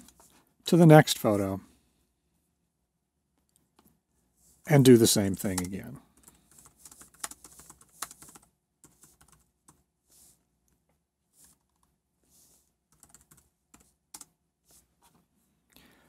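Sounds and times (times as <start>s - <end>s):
faint keyboard typing: 5.4s - 9.9s, 10.6s - 12.0s, 12.9s - 15.2s.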